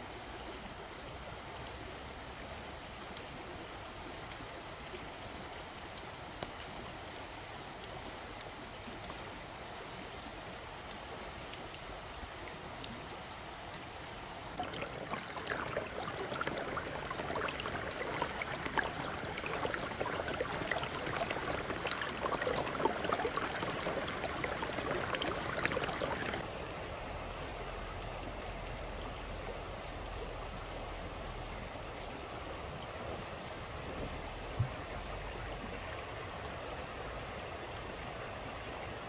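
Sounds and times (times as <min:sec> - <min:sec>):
stream babbling over stones: 0:14.5 - 0:26.4.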